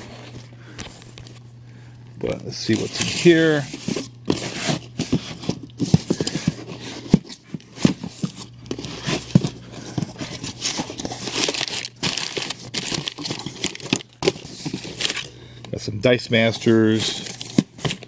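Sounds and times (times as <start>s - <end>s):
cardboard rustling: 2.4s - 15.3s, 16.3s - 18.0s
packing paper crinkling: 2.6s - 15.4s, 16.4s - 18.0s.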